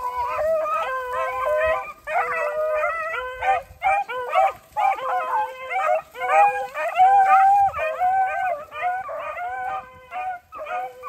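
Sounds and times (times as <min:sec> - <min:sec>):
dogs baying and howling: 0:00.0 - 0:11.0.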